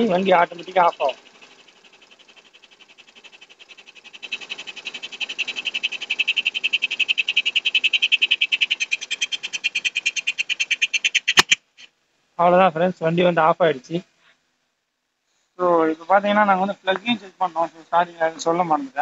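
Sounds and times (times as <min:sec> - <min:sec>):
scooter engine idling: 0:00.0 - 0:11.6.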